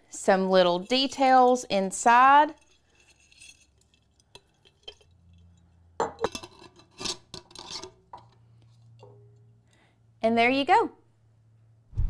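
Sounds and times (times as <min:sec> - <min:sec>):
metal lid scraping jar rim: 0:00.6 - 0:09.2.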